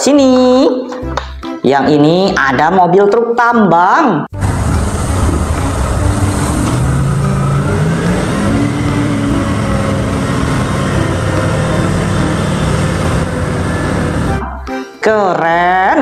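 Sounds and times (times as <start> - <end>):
diesel engine running hard: 4.4 - 14.4.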